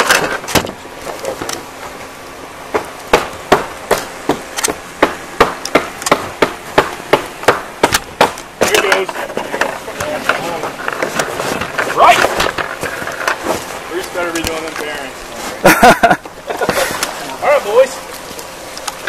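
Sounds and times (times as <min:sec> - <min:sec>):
rapid knocks on wood: 0:02.7 - 0:10.4.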